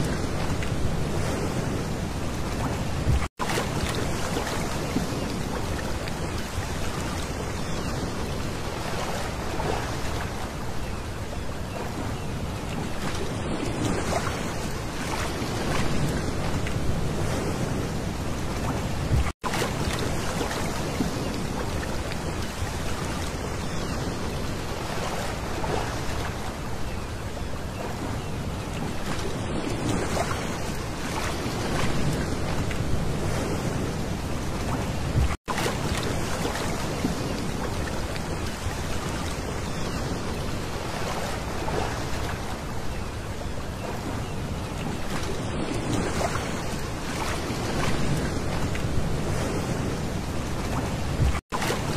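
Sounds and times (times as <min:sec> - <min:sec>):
waves lapping on pebble beach: 0:35.3 - 0:42.7.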